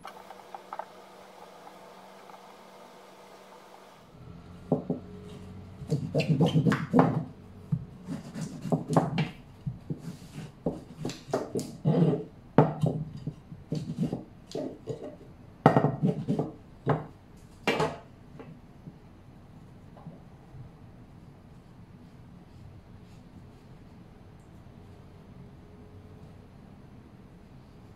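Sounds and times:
rolling pin knocking and rubbing: 5.8 - 19.0.

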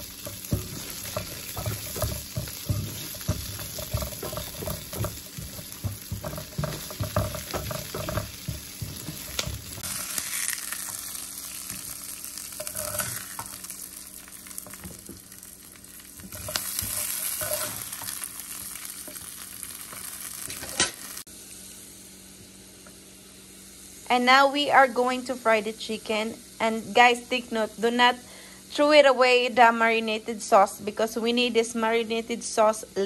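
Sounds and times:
plastic spatula scraping pan: 0.0 - 9.9
onions sizzling in hot oil: 0.0 - 32.9.

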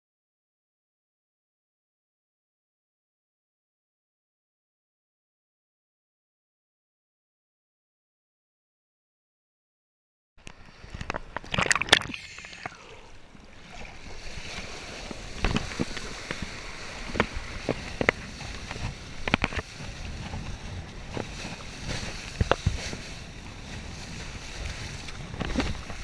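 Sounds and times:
board slapping waves: 10.4 - 26.0
water spray and wind rush: 10.4 - 26.0.

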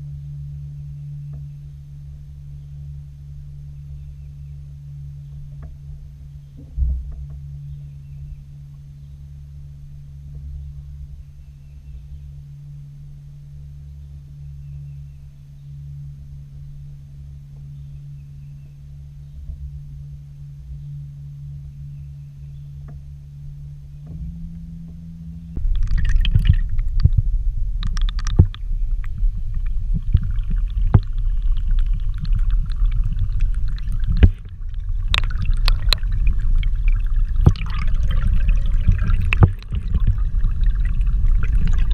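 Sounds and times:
steady low hum: 0.0 - 41.9
underwater river rush: 25.5 - 41.9.

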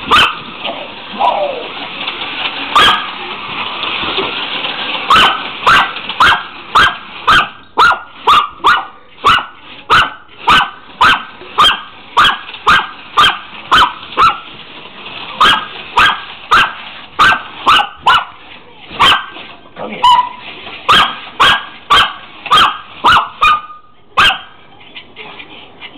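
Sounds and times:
dog barking: 0.1 - 0.4, 2.8 - 3.1, 5.1 - 14.4, 15.4 - 18.4, 19.0 - 19.3, 20.0 - 24.6.

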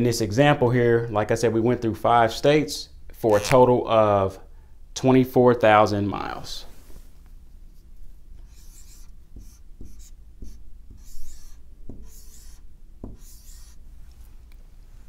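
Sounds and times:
marker writing on whiteboard: 8.4 - 13.8
marker tip tapping board: 9.4 - 13.6.

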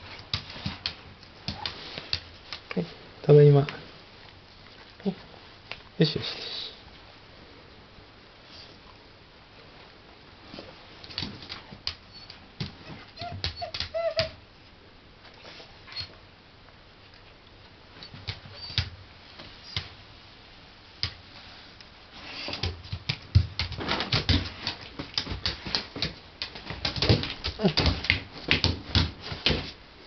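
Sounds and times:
dog whining: 12.0 - 14.4, 15.4 - 16.2, 18.0 - 18.9.

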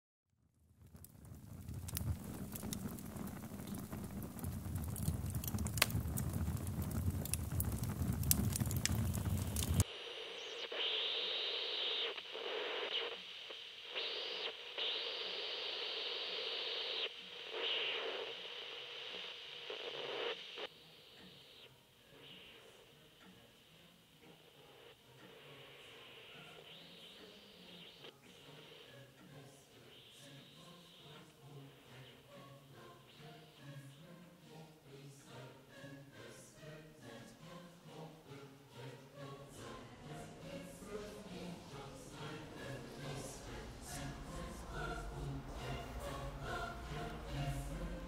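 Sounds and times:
low rumble: 1.3 - 9.8, 40.8 - 48.0
radio static hiss: 1.9 - 34.6, 39.2 - 48.0
tinny radio signal: 2.0 - 36.0, 36.6 - 48.0.

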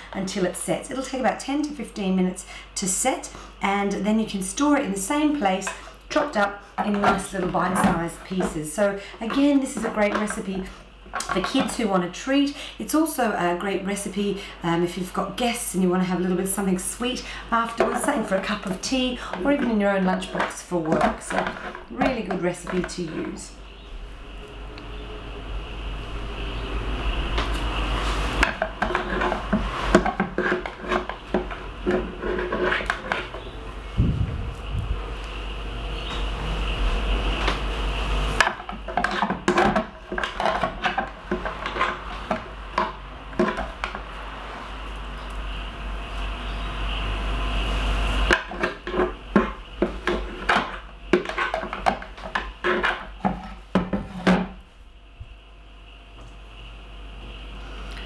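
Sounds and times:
spoon scraping on plastic: 17.7 - 23.5, 28.4 - 33.6, 38.5 - 42.5, 48.4 - 54.3
utensil scraping plastic jug: 28.4 - 33.5.

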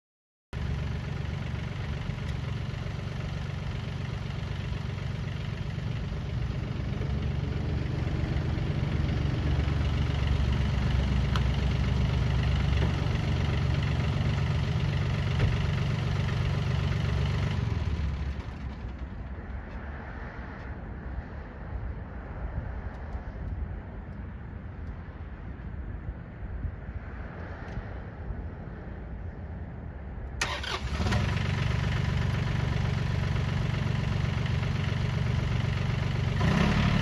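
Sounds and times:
tractor diesel engine running: 0.6 - 19.6, 30.4 - 37.0.

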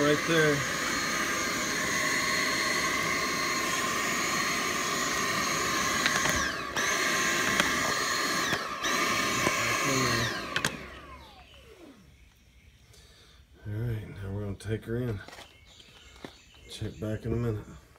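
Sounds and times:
vacuum motor winding down: 0.0 - 12.4
vacuum cleaner whining: 0.0 - 12.5.

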